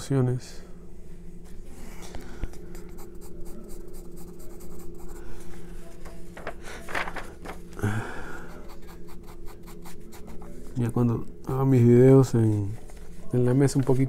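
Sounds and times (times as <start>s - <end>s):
steady low hum: 0.0s - 14.0s
pencil shading on paper: 2.9s - 5.3s, 8.6s - 10.6s.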